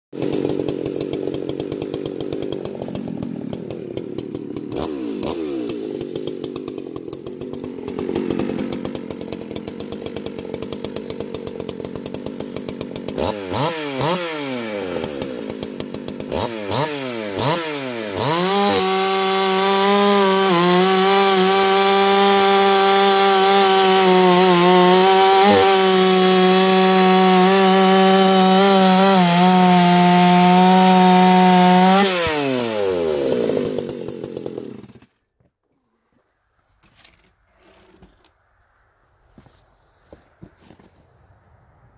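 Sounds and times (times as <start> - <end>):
chainsaw cutting log: 0.1 - 35.5, 36.6 - 38.4
chainsaw engine: 0.1 - 38.4.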